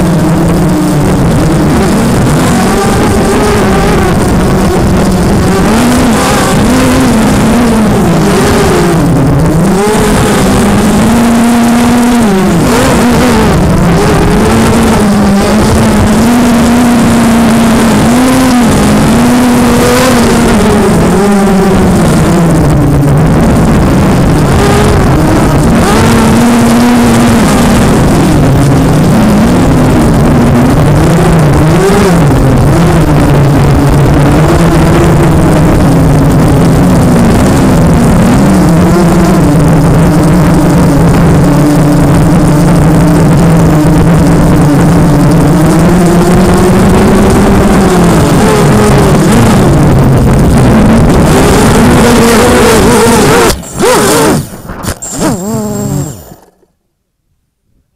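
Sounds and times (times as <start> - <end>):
wind noise: 0.0 - 56.6
quadcopter motors buzzing: 0.0 - 56.7.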